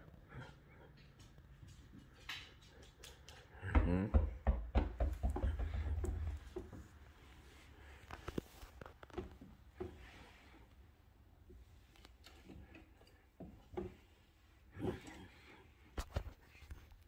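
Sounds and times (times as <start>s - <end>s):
rubber ball bouncing on floor: 3.6s - 6.8s.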